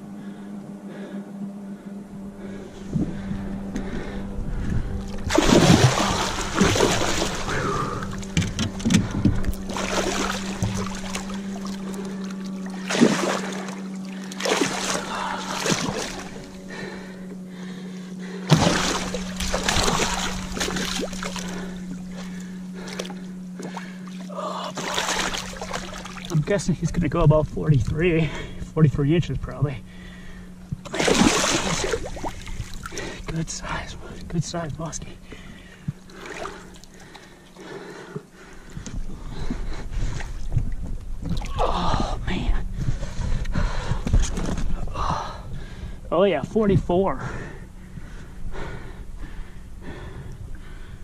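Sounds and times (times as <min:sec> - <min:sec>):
steady low hum: 0:00.0 - 0:51.0
fish thrashing and splashing: 0:05.0 - 0:17.0, 0:18.4 - 0:26.5, 0:30.8 - 0:33.3, 0:36.0 - 0:37.6.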